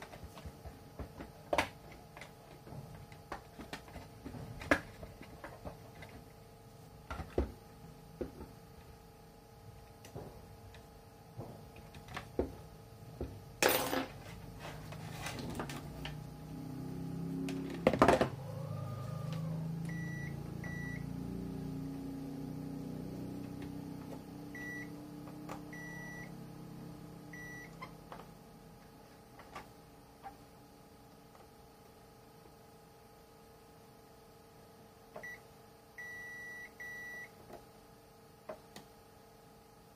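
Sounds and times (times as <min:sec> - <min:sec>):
multimeter beeping: 0:19.9 - 0:21.1, 0:24.6 - 0:25.0, 0:25.7 - 0:26.3, 0:27.4 - 0:27.8, 0:36.0 - 0:37.3.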